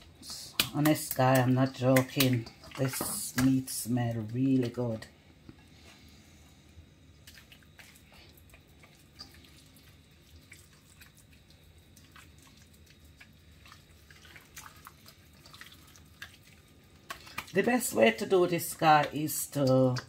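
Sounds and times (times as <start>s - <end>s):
hands kneading wet meat: 0.0s - 6.1s, 7.2s - 20.0s
low room hum: 0.0s - 20.0s.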